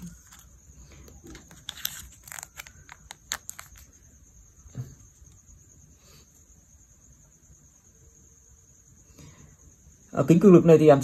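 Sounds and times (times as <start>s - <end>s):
crinkly crackles: 0.0s - 4.0s
faint high-pitched hiss: 0.0s - 11.0s
sachet tearing open: 1.3s - 3.9s.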